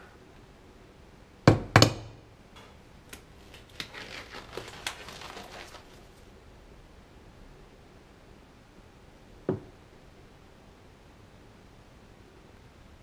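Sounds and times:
disposable gloves rustling: 0:02.6 - 0:06.3.

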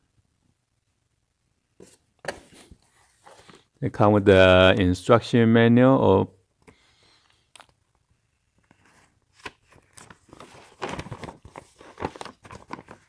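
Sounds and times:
paper rustling and crackling: 0:08.7 - 0:13.0.

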